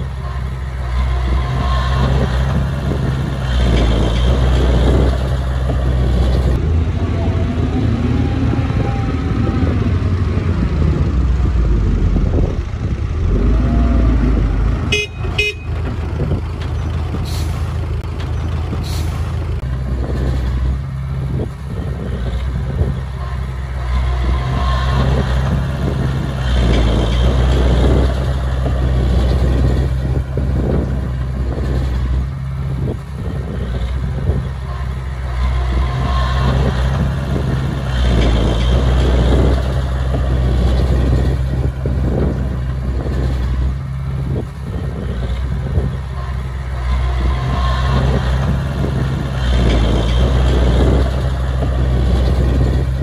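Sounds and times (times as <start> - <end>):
heavy diesel engine rumbling: 0.0 - 53.0.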